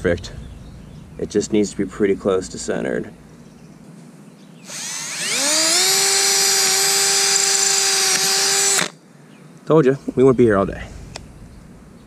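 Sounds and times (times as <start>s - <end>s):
cordless drill drilling through metal: 4.7s - 9.0s.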